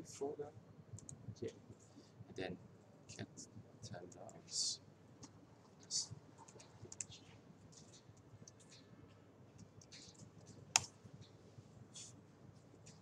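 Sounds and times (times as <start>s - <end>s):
keyboard typing: 6.4s - 7.2s.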